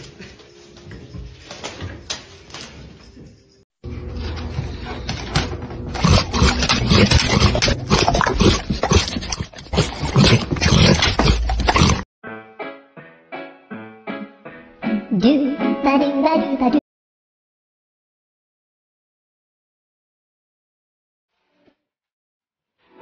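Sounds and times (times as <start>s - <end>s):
dog chomping and crunching: 5.9s - 12.0s.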